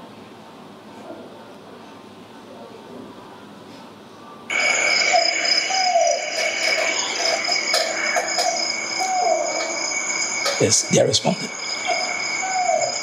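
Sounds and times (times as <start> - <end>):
steady high hiss: 4.5 - 13.0.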